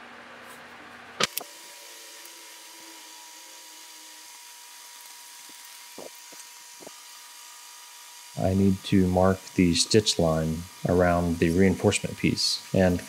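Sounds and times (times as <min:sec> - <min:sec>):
sharp click: 0:01.2 - 0:01.5.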